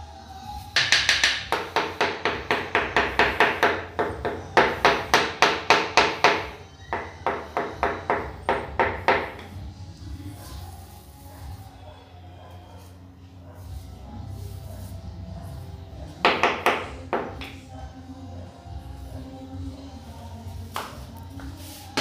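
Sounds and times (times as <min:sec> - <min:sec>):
ringing taps on ceramic tiles: 0:00.8 - 0:02.0.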